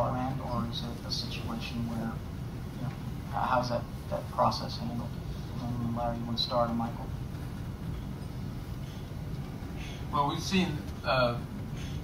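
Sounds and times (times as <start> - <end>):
low room tone rumble: 0.0 - 12.0.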